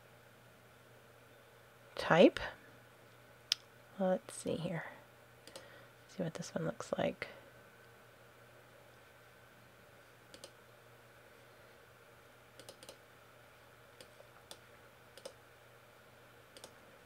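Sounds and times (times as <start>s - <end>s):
low steady hum: 0.0s - 17.0s
computer mouse clicks: 5.4s - 5.7s, 10.3s - 10.6s, 12.6s - 13.0s, 14.0s - 15.4s, 16.5s - 16.8s.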